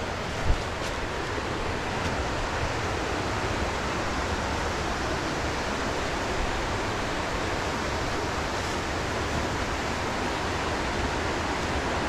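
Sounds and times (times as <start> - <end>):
fast-flowing creek water: 0.0 - 12.0.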